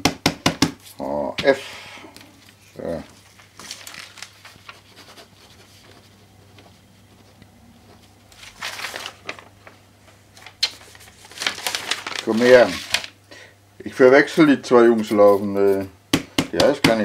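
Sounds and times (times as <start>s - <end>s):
paper rustling: 2.4s - 13.2s.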